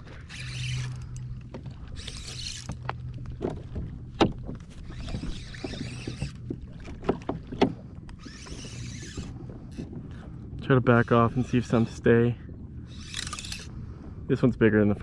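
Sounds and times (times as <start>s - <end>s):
steady low hum: 0.0s - 15.0s
knocks and clicks in kayak: 2.7s - 8.2s.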